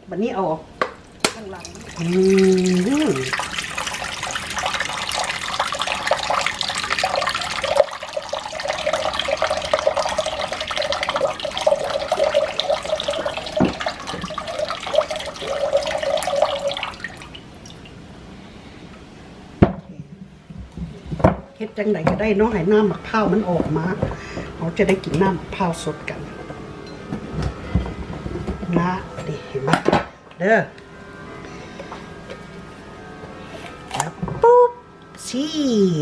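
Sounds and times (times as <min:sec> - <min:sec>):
water pouring into a bowl: 0:01.2 - 0:18.0.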